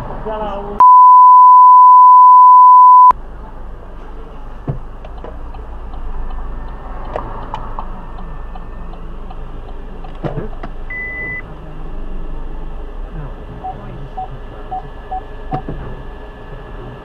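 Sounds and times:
censor bleep: 0:00.8 - 0:03.2, 0:10.9 - 0:11.4.

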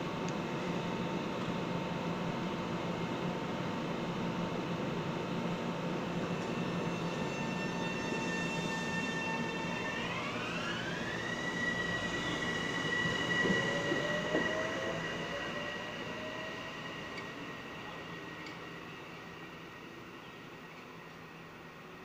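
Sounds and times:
electric train motor whine: 0:04.2 - 0:19.8.

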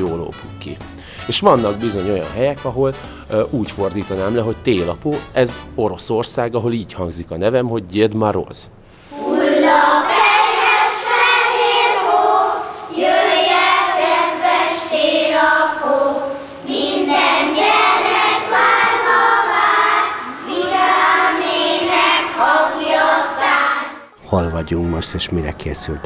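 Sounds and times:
children singing: 0:09.1 - 0:26.0.

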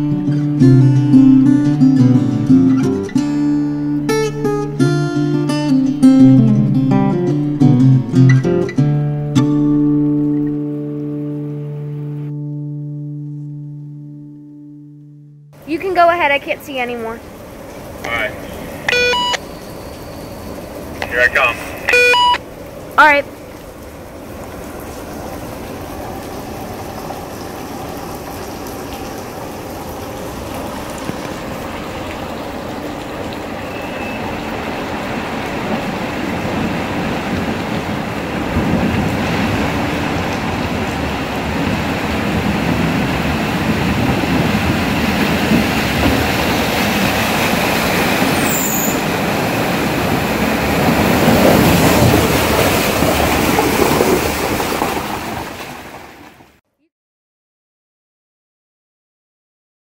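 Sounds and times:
car engine and tyre noise: 0:17.2 - 0:56.6.

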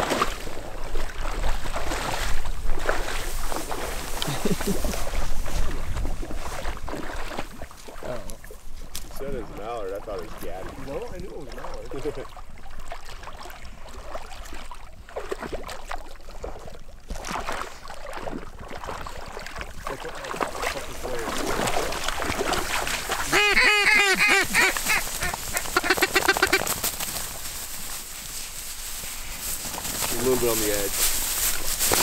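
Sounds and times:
duck quacking: 0:23.3 - 0:26.7.

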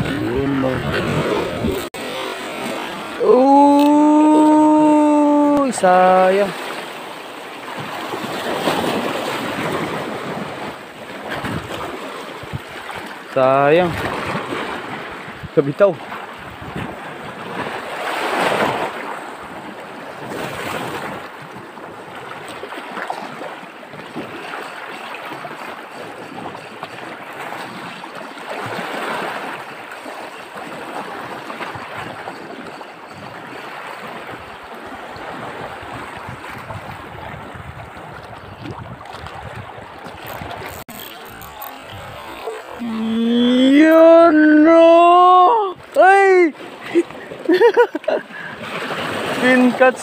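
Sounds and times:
wind buffeting microphone: 0:00.0 - 0:03.2, 0:07.8 - 0:13.0, 0:16.3 - 0:18.9, 0:31.4 - 0:42.9
sea waves washing over rocks: 0:00.0 - 0:50.0.

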